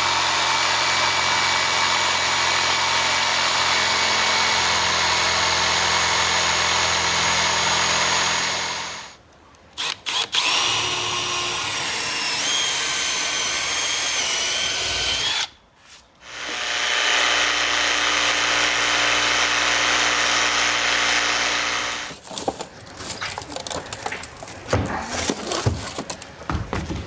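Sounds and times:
cordless drill running: 0.0 - 9.2, 9.8 - 15.5, 16.2 - 22.1
jigsaw cutting through panel: 0.0 - 9.2, 9.8 - 15.5, 16.2 - 22.1
wooden knocks and rattles: 22.1 - 27.0.

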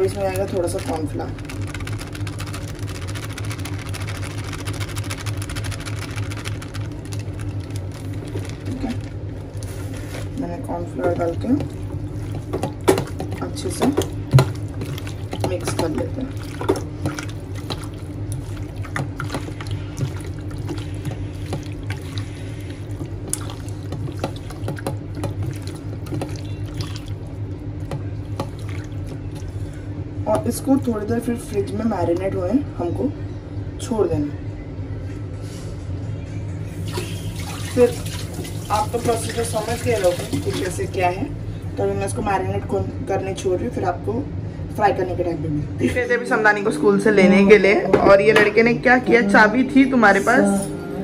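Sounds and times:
hands squelching in wet marinade: 0.0 - 10.4, 14.0 - 29.8
low steady hum: 0.0 - 51.0.

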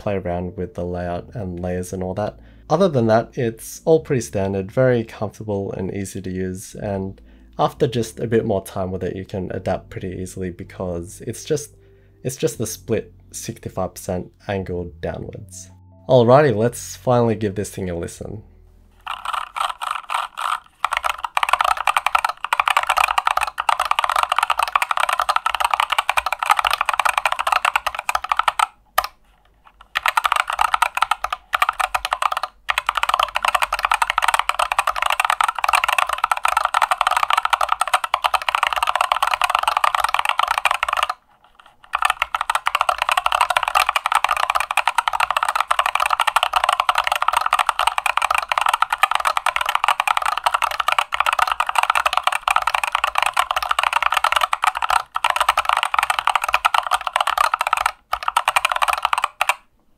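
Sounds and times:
clacky mechanical keyboard typing: 19.0 - 59.6.

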